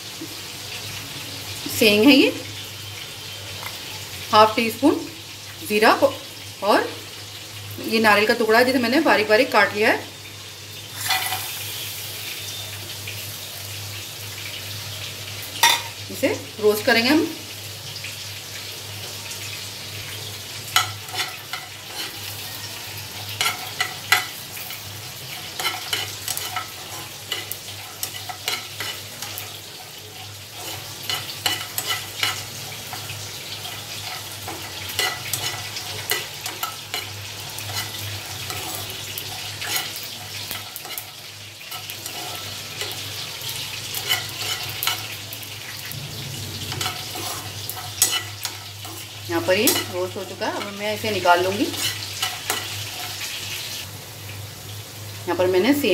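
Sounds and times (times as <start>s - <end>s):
spatula scraping frying pan: 10.9s - 12.6s, 19.6s - 46.0s, 46.6s - 53.7s.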